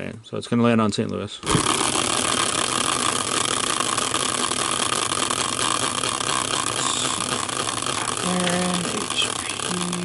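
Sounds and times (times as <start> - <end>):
caster wheel whirring: 1.4 - 10.0.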